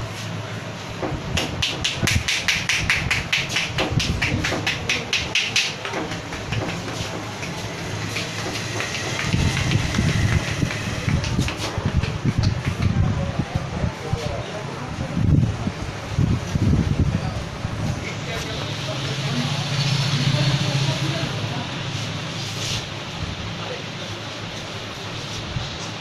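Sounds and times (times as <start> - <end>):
rapid crisp taps: 1.0 - 13.2.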